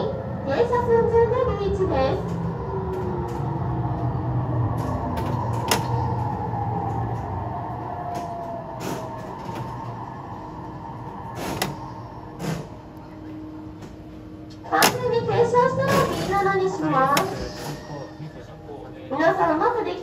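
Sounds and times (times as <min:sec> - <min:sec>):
electric train braking: 0:04.3 - 0:13.1.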